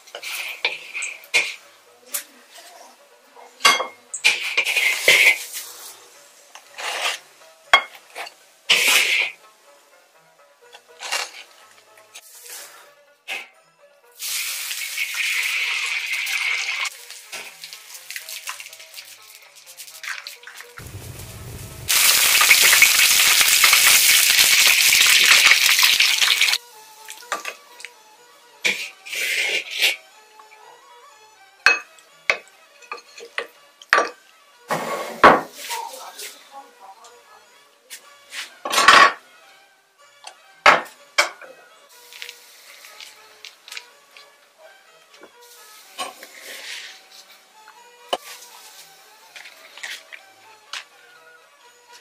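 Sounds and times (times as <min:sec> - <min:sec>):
eggs sizzling in hot oil: 0:04.2 - 0:05.9, 0:14.2 - 0:27.9, 0:41.9 - 0:43.8, 0:45.3 - 0:47.3, 0:48.1 - 0:50.2
wooden spatula scraping wok: 0:04.2 - 0:07.3, 0:11.0 - 0:12.9, 0:34.7 - 0:36.4, 0:45.5 - 0:47.4
low rumble: 0:20.8 - 0:22.2.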